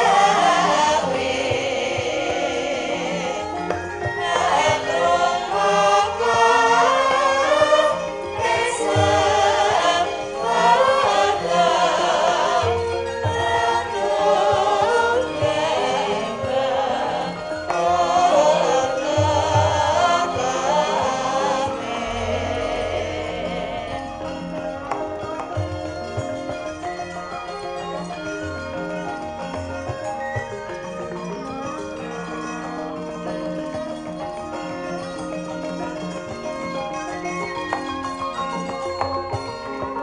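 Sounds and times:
group of singers singing: 0.0 - 26.6
gamelan music: 0.0 - 40.0.

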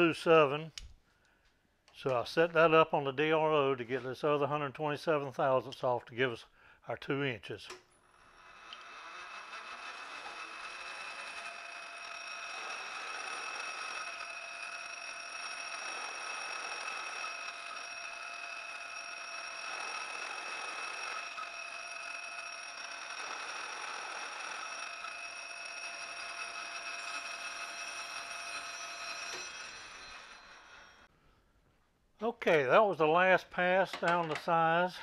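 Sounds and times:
metal lathe whining: 8.0 - 31.1.

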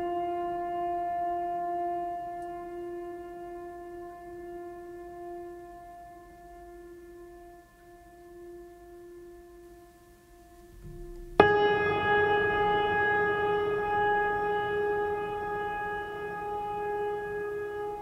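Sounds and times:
faint steady tone: 0.0 - 18.0
loud sustained ringing tone: 10.7 - 18.0.

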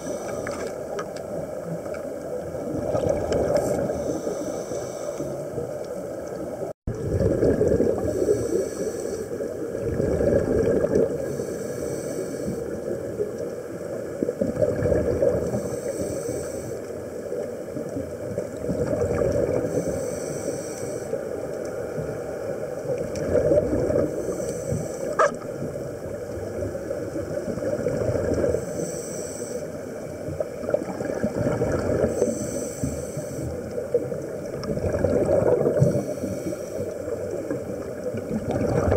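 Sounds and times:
regulator inhale hiss: 0.0 - 1.0, 3.6 - 5.7, 8.0 - 9.5, 11.2 - 12.9, 15.5 - 17.1, 19.6 - 21.4, 24.0 - 25.3, 28.5 - 30.1, 32.0 - 33.8, 35.8 - 37.5
gurgling exhaled bubbles: 1.6 - 5.8, 6.6 - 11.5, 12.5 - 15.8, 17.7 - 19.9, 22.0 - 28.6, 30.2 - 32.6, 33.5 - 38.9.

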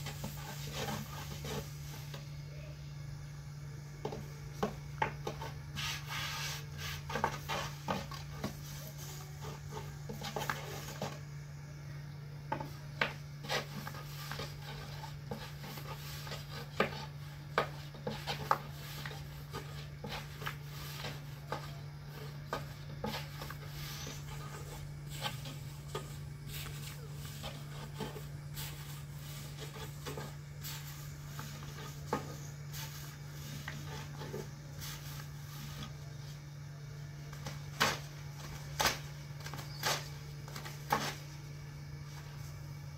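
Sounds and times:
hands rubbing and scraping dough: 0.0 - 2.7, 4.0 - 11.4, 12.6 - 42.7
steady low hum: 0.0 - 42.9.

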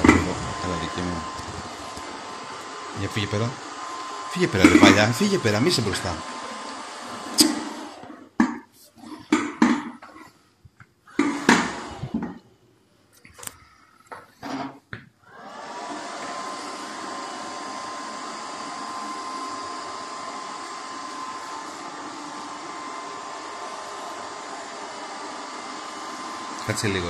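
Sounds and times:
robot vacuum motor whining: 0.0 - 8.2, 15.3 - 27.0.

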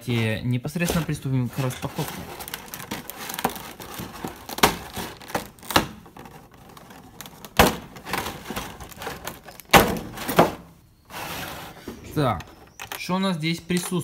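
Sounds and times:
plastic packaging clacking: 0.0 - 10.8, 12.2 - 14.0
plastic crinkling: 0.0 - 14.0.

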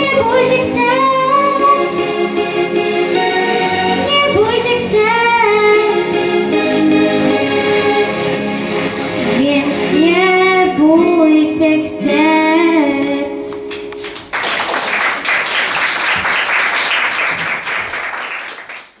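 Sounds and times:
girl singing: 0.0 - 2.1, 4.0 - 6.4, 9.3 - 14.0
instrumental accompaniment: 0.0 - 15.3
audience applauding: 13.7 - 19.0.

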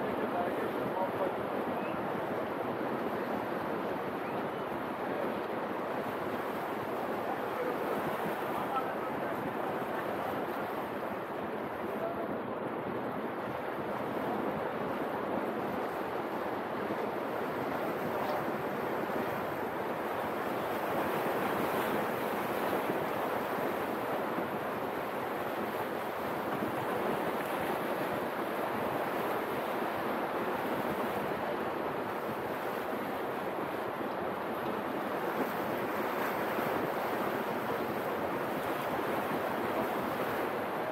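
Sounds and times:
sea waves washing against concrete: 4.9 - 12.4.

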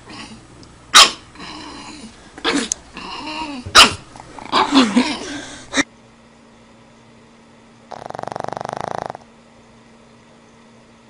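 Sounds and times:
puppy yapping: 0.9 - 1.2, 2.4 - 5.1.

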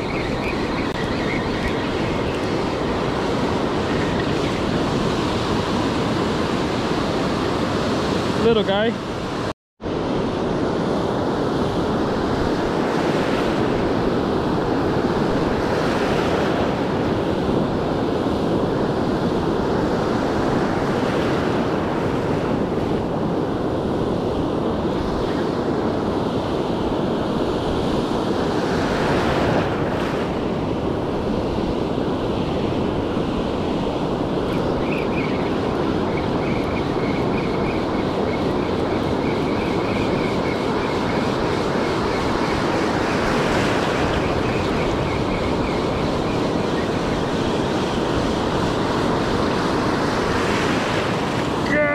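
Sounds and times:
ocean surf breaking on beach: 0.0 - 51.9
wind buffeting microphone: 0.0 - 51.9.

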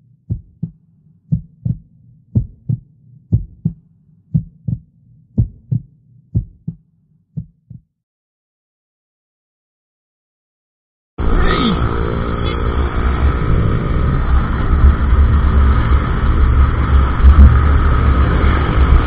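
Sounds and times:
heartbeat thumps: 0.3 - 6.8, 7.4 - 7.9, 17.2 - 17.6
low drone: 11.2 - 19.0.

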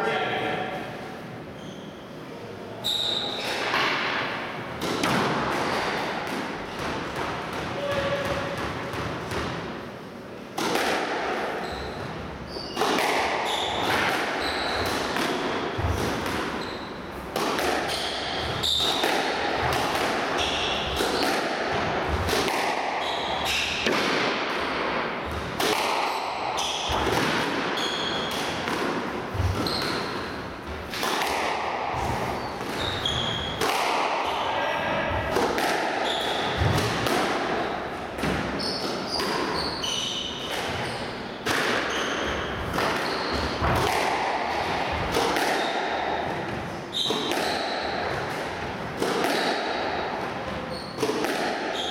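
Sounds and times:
squash ball cracking off rackets: 10.5 - 34.3, 41.4 - 50.0, 51.0 - 51.9
shoes squeaking on wooden floor: 11.6 - 12.8, 13.4 - 14.9, 15.6 - 17.1, 29.4 - 30.3, 32.0 - 33.6, 41.9 - 43.6.

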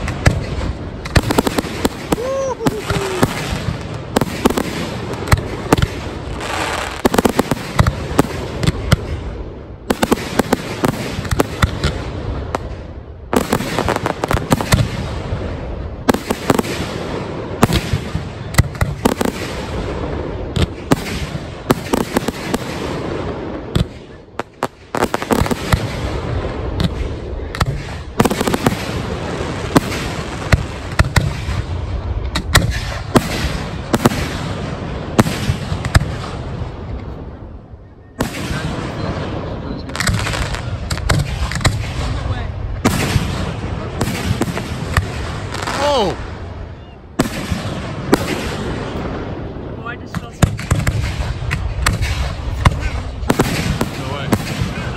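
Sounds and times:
fireworks bursting: 0.0 - 54.9.

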